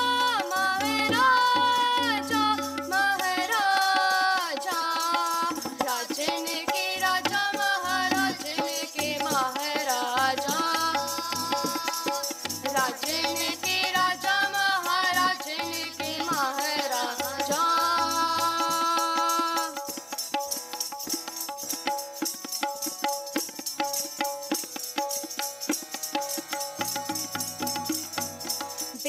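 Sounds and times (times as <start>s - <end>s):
young voices singing together: 0.0s - 19.6s
harmonium: 0.0s - 29.0s
tabla strokes: 0.0s - 29.0s.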